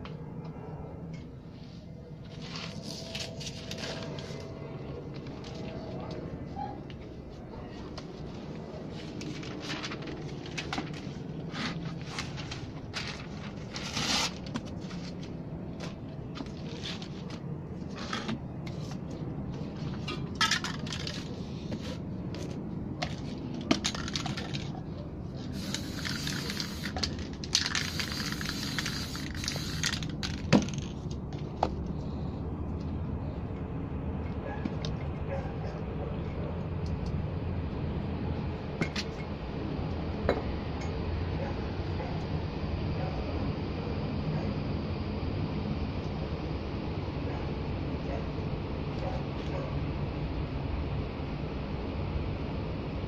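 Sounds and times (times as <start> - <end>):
paper crinkling: 2.3 - 4.6, 8.9 - 15.3
spray paint cans hissing: 25.4 - 30.9.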